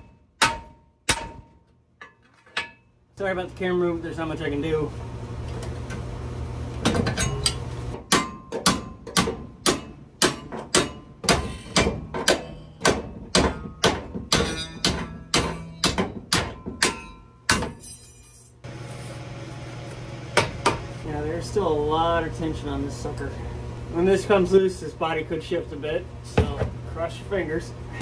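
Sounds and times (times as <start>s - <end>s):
hammer ringing on steel: 7.2s - 18.0s.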